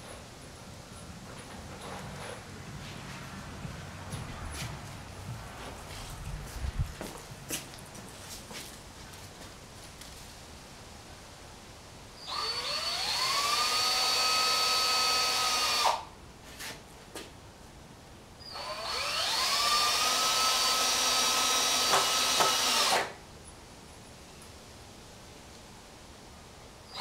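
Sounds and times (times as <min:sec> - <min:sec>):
power drill driving screws: 0:12.2 - 0:16.0, 0:18.5 - 0:23.2.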